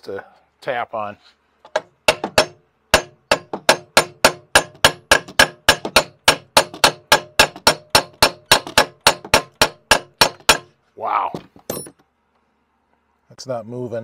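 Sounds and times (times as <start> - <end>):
hammer striking steel bolt: 1.7 - 10.7.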